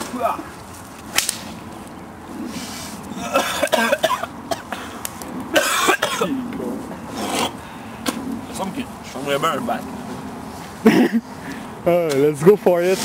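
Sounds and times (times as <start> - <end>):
person coughing: 3.2 - 4.8, 5.6 - 6.4, 10.9 - 11.2.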